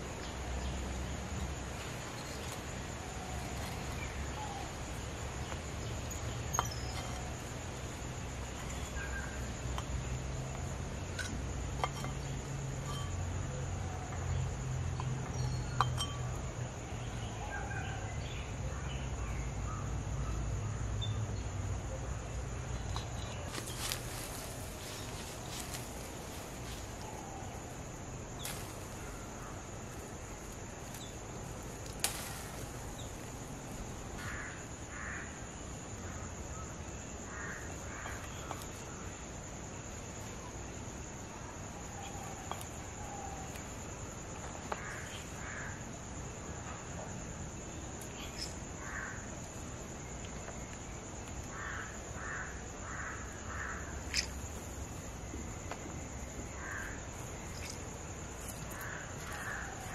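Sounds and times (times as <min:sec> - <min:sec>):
high insect drone: 0:00.0 - 0:59.9
crows cawing: 0:34.2 - 0:35.4, 0:37.3 - 0:38.2, 0:51.5 - 0:53.9, 0:56.6 - 0:57.0.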